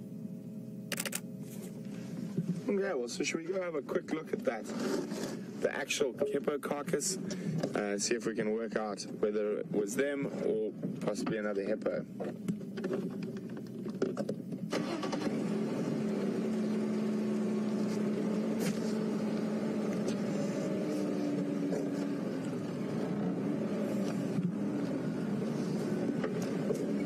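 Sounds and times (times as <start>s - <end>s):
vehicle engine running: 14.8s - 27.0s.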